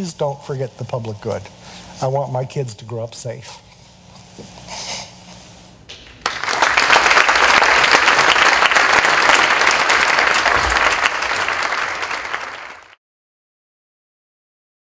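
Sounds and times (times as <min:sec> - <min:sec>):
audience applauding: 0:06.1 - 0:13.0.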